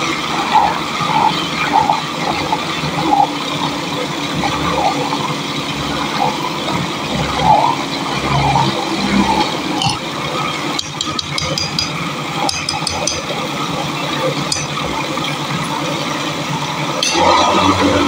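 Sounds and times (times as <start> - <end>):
metal spoon clinking on glass: 10.8 - 13.4, 14.5 - 15.4, 17.0 - 17.3.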